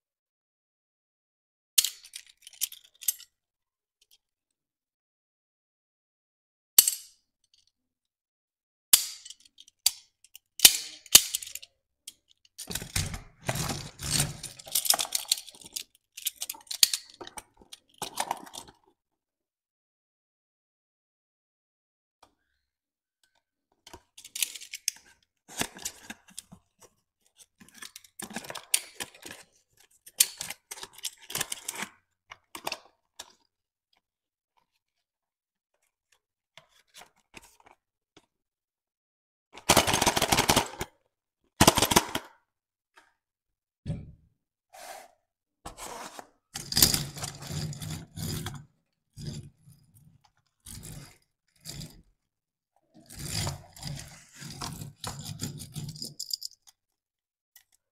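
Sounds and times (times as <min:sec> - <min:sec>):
toy trucks scraping on cardboard: 0:44.8 - 0:48.6, 0:53.0 - 0:55.9
cardboard scraping and rustling: 0:45.7 - 0:46.4.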